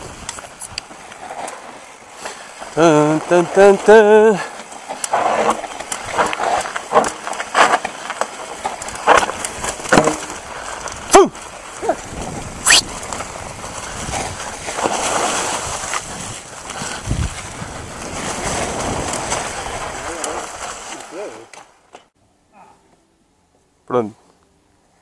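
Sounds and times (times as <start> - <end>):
bike knocking and rattling: 0.0 - 22.1
bike tyres over rocky ground: 0.0 - 22.2
wind on microphone: 15.7 - 20.0.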